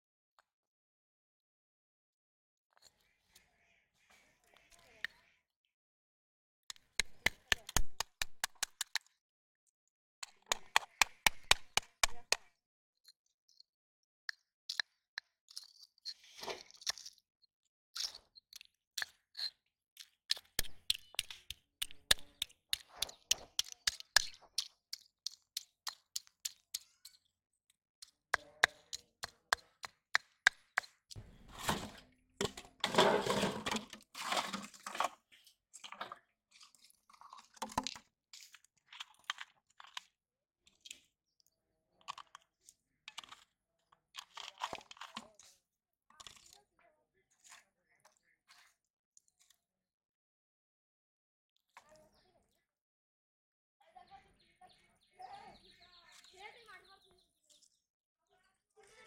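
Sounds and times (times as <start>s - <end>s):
snail shells crushed with stone: 18.0s - 26.9s.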